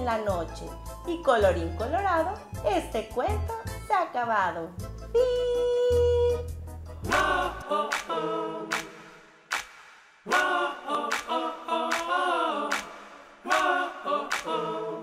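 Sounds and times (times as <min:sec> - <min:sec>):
voices singing a jingle: 0:07.0 - 0:08.7, 0:10.3 - 0:12.8, 0:13.4 - 0:15.0
sharp percussive hits: 0:07.9 - 0:10.5.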